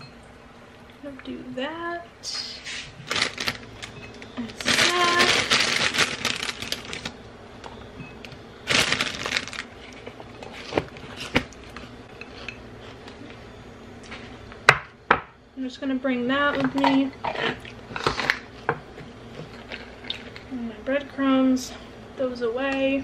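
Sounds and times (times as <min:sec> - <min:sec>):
plastic bag crinkling: 0:03.0 - 0:07.2, 0:08.6 - 0:11.3.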